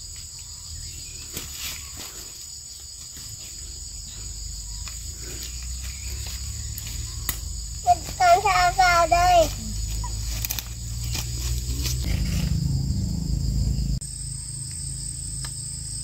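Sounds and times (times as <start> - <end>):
insects chirring: 0.0 - 16.0
low rumble: 9.8 - 14.0.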